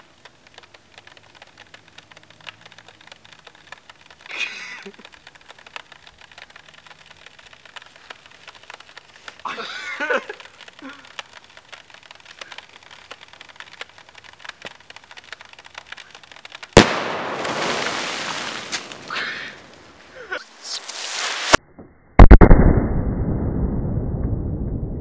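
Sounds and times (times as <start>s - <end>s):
dry ice bomb bang: 16.8s - 18.8s
rushing hiss: 16.8s - 21.6s.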